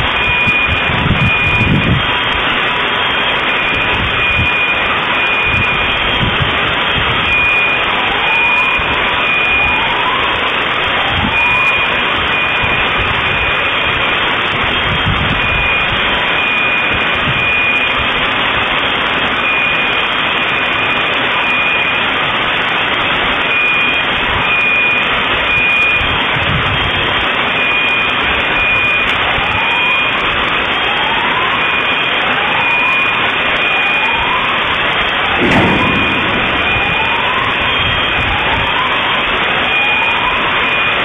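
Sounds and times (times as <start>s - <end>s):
electronic alarm beeping: 0.1s - 10.2s, 11.3s - 14.0s, 15.0s - 18.0s, 19.4s - 22.1s, 23.5s - 26.1s, 27.6s - 30.1s, 31.6s - 34.4s, 35.0s - 41.0s
rising alarm whoop: 28.6s - 41.0s
loud rushing noise: 35.3s - 39.2s.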